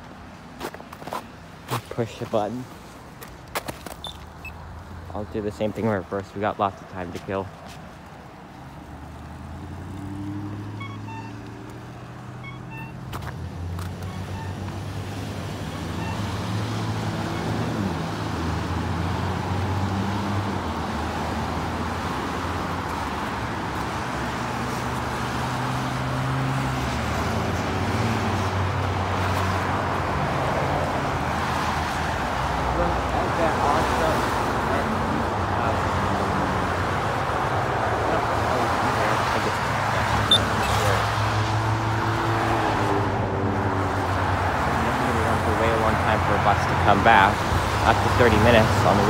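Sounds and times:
vehicles passing: 0:00.0 - 0:49.0
car engines running: 0:08.1 - 0:49.0
pedestrian crossing signal chirps: 0:10.6 - 0:13.2, 0:14.0 - 0:14.8, 0:15.7 - 0:16.4, 0:40.1 - 0:40.9.

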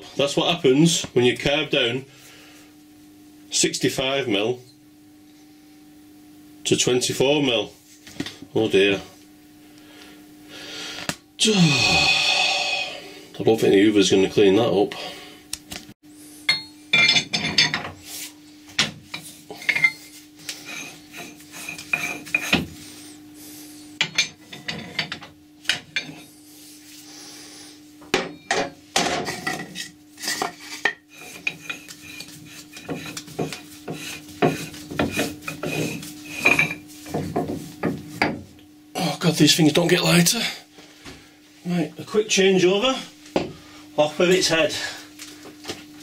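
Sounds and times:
steady low hum: 0:00.0 - 0:46.0
metal clanks and scraping: 0:16.5 - 0:18.0, 0:18.8 - 0:22.7, 0:24.0 - 0:26.3, 0:28.3 - 0:37.6.

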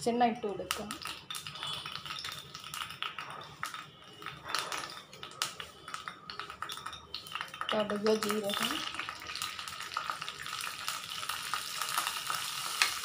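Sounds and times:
hot oil crackling: 0:00.4 - 0:13.0.

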